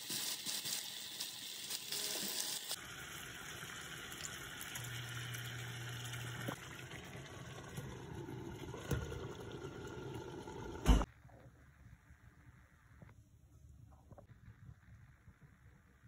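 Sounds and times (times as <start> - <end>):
chicken sizzling in a pan: 0.0 - 6.6
water pouring into pan: 0.0 - 10.9.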